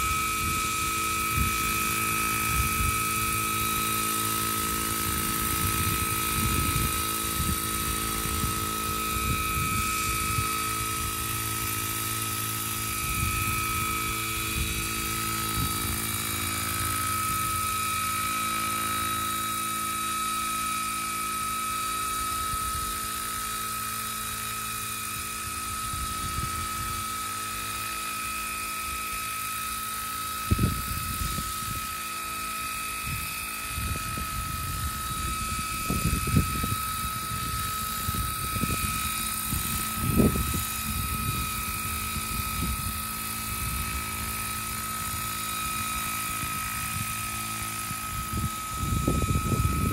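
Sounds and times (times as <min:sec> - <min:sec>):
wind buffeting microphone: 0:00.0 - 0:17.7, 0:25.7 - 0:27.0, 0:30.4 - 0:32.0, 0:33.0 - 0:49.9
model helicopter hovering: 0:00.0 - 0:49.9.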